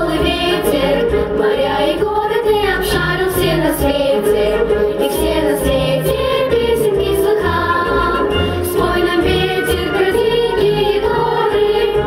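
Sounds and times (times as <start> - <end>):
children singing into microphones: 0.0 - 12.0
instrumental accompaniment with beat: 0.0 - 12.0.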